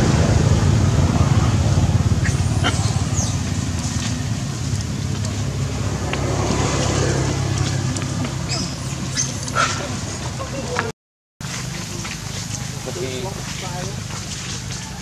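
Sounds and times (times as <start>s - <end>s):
engine humming: 0.0s - 10.8s
short high chirps: 2.2s - 3.9s, 8.5s - 9.8s.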